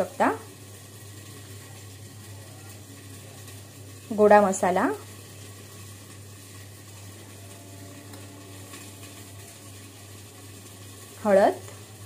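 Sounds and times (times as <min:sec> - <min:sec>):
low hum: 0:04.4 - 0:12.0.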